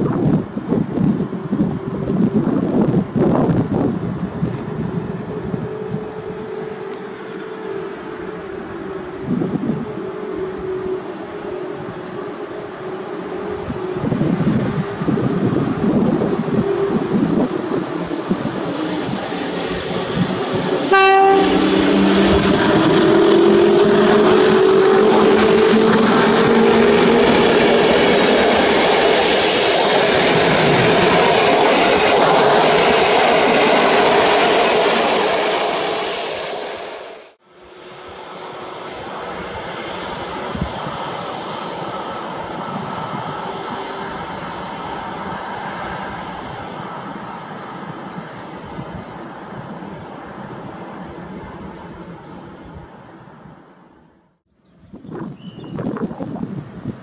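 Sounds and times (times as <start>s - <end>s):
train rolling on rails: 0.0s - 54.1s
locomotive hum: 0.3s - 53.7s
train horn toot: 7.4s - 13.8s, 20.8s - 27.2s.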